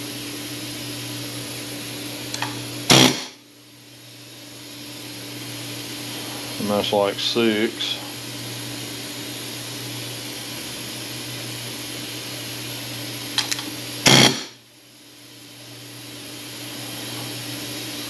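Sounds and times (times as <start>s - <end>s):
steady machine hum: 0.0s - 18.0s
pneumatic air hammer burst: 2.4s - 3.4s, 13.4s - 14.6s.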